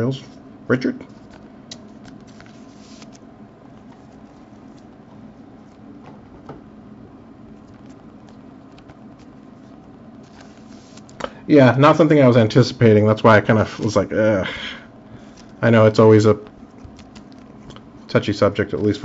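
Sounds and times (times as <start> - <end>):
low room hum: 0.0 - 19.0
trading cards rustling and clicking: 1.1 - 6.0, 7.5 - 11.3, 16.5 - 17.8.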